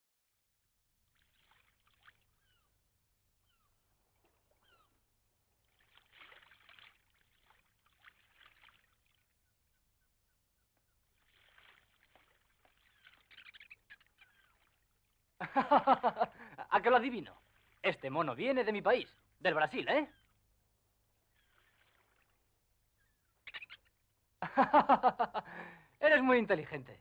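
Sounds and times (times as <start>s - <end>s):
water sloshing: 1.0s - 24.3s
bird chirps: 2.3s - 2.8s, 3.4s - 3.8s, 4.6s - 5.0s, 12.8s - 14.9s, 19.0s - 20.4s, 23.0s - 24.0s.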